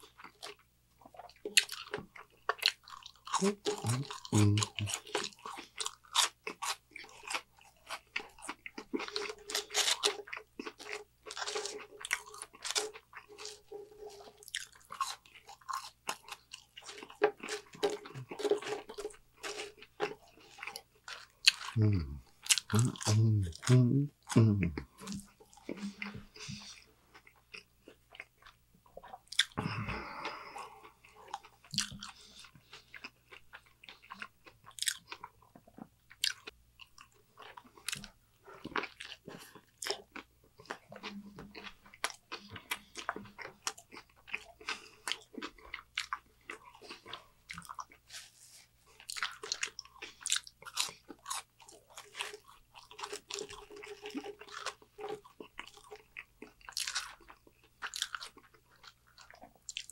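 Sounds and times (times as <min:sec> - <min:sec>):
person chewing food: 0:00.0 - 0:59.9
mouth clicks and smacks: 0:00.4 - 0:05.8, 0:21.4 - 0:26.9.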